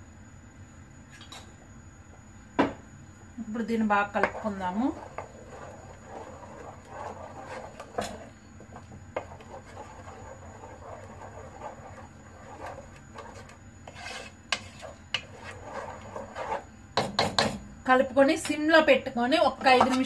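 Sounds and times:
wooden spatula scraping a pot: 0:03.7 - 0:17.2, 0:19.6 - 0:20.0.

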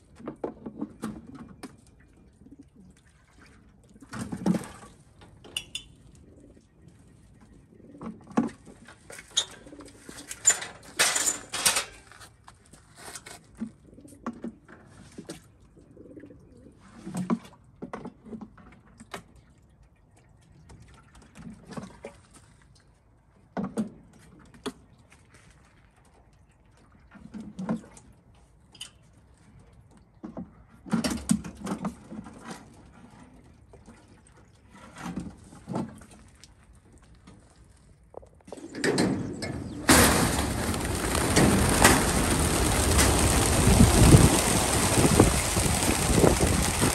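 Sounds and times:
water splashing from watering can: 0:40.1 - 0:46.9.

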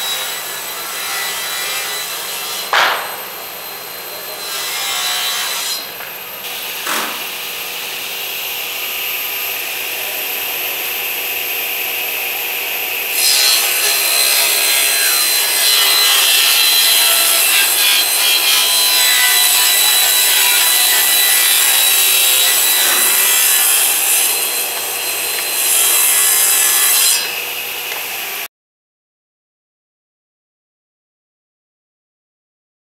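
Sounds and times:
table saw ripping a panel: 0:00.0 - 0:10.0, 0:10.8 - 0:28.5
table saw running: 0:00.0 - 0:28.5
knock: 0:02.8 - 0:03.2.

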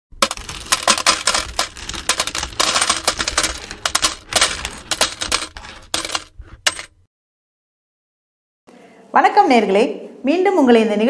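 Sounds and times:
coins clinking and dropping: 0:00.2 - 0:07.0.

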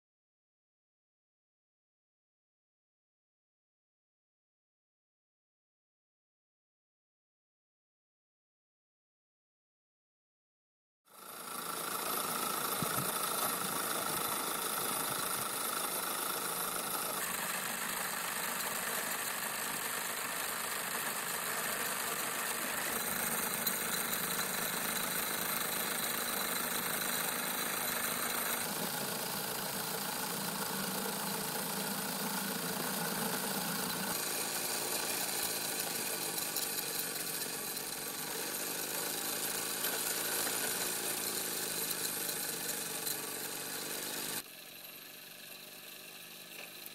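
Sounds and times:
model steam engine running: 0:11.1 - 0:46.9
steam hissing: 0:11.5 - 0:46.8.

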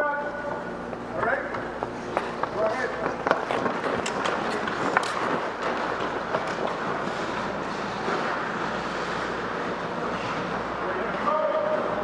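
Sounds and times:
skate blades scraping ice: 0:02.0 - 0:10.6.

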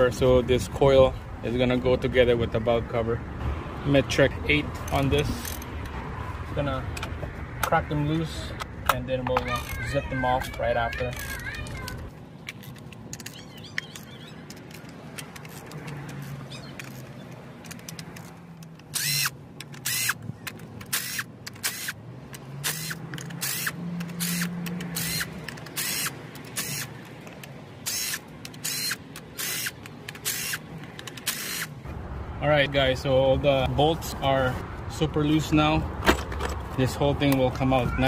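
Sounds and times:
cordless power ratchet whirring: 0:09.5 - 0:31.8
ratchet clicking: 0:10.9 - 0:31.8.

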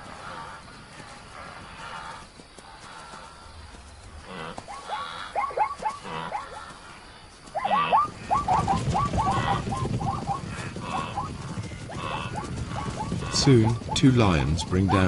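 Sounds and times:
rumble of hooves: 0:00.0 - 0:15.0
zebras barking alarm calls: 0:04.2 - 0:15.0.

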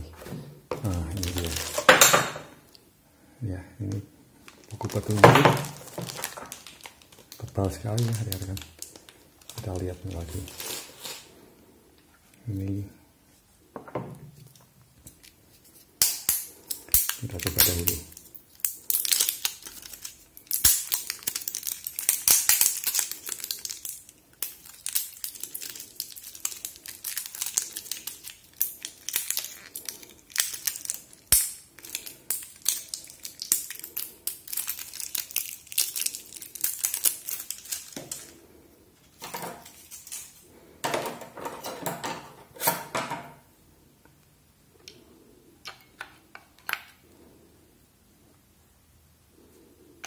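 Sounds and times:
plastic wrapping crinkling and tearing: 0:00.7 - 0:02.4, 0:03.8 - 0:11.4, 0:14.5 - 0:38.4, 0:39.0 - 0:40.5.

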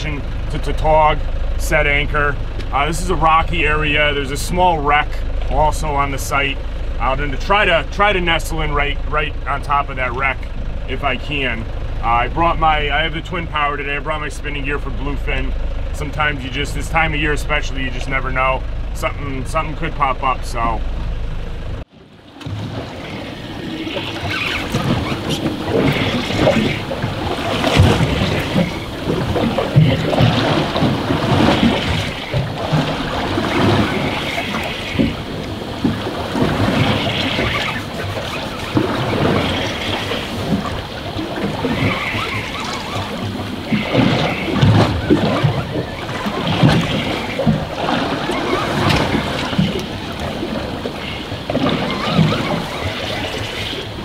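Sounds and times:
choppy sea water washing: 0:00.0 - 0:54.0
wind gusting on microphone: 0:10.4 - 0:54.0.

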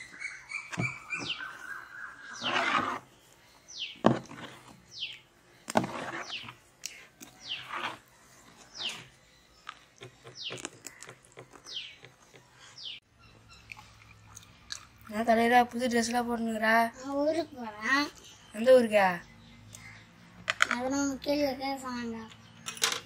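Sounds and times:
bird whistling: 0:00.0 - 0:02.6
ladle scraping metal basin: 0:02.2 - 0:03.2, 0:05.7 - 0:06.6, 0:07.4 - 0:08.1.

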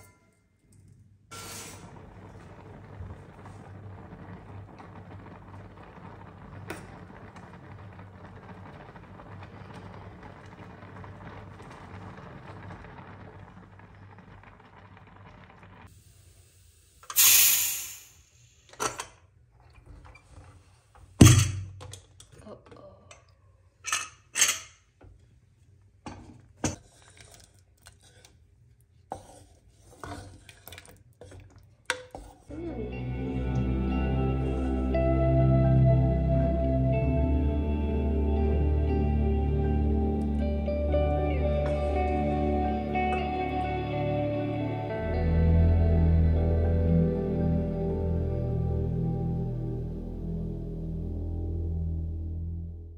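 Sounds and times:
gas burner hiss: 0:01.3 - 0:07.0, 0:15.7 - 0:18.8
water bubbling in a pot: 0:01.8 - 0:15.9
wooden spoon stirring in metal pot: 0:26.3 - 0:32.6
low hum: 0:32.5 - 0:52.9.

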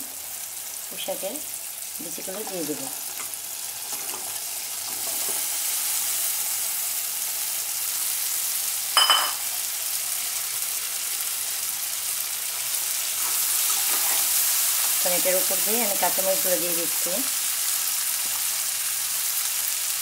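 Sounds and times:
food sizzling in oil: 0:00.0 - 0:20.0
spatula clinking on pan: 0:09.0 - 0:09.5.

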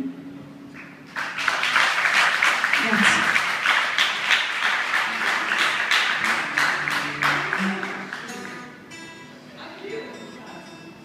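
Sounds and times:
audience applauding: 0:00.7 - 0:08.8.

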